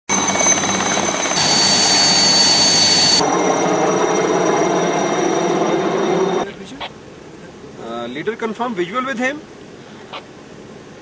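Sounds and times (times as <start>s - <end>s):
helicopter turbine whine: 0.1s - 6.7s.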